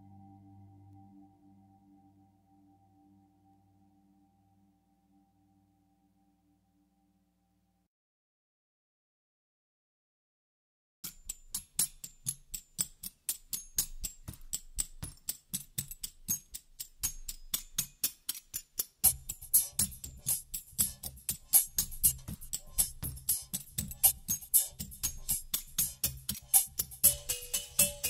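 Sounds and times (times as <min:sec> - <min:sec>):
percussion beat of crisp ticks: 0:11.0 - 0:28.0.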